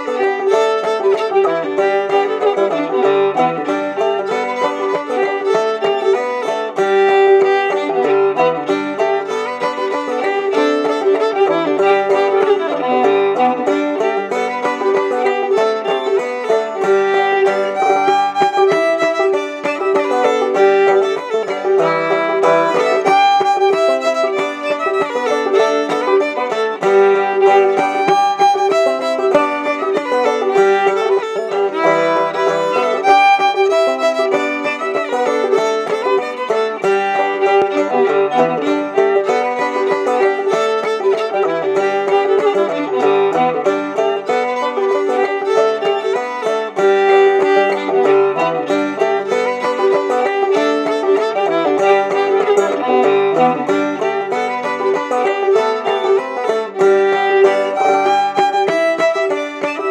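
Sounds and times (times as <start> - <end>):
banjo playing: 0.0 - 59.9
fiddle playing: 0.0 - 59.9.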